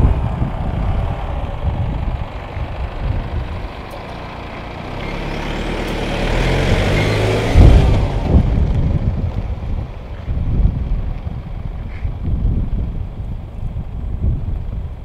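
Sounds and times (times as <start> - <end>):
vehicle driving past: 0.0 - 10.7
loud low thumps: 6.6 - 11.1.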